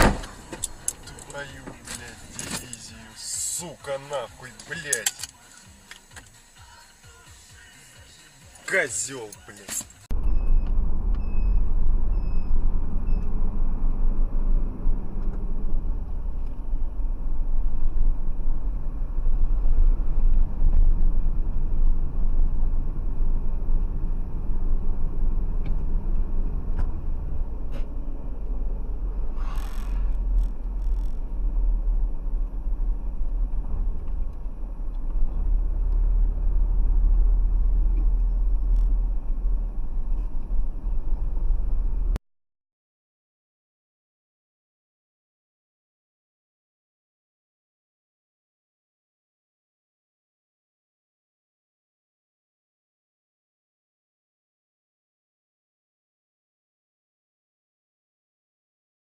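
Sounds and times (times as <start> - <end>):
vehicle engine and tyre rumble: 0.0 - 42.2.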